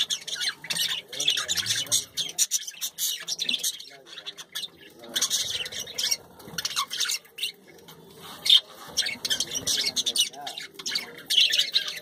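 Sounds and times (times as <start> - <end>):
budgerigars chattering: 0.0 - 12.0.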